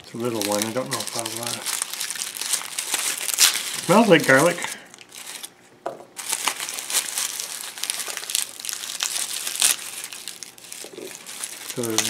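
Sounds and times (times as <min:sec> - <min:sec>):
garlic skins crinkling and crackling: 0:00.0 - 0:05.5, 0:06.2 - 0:12.0.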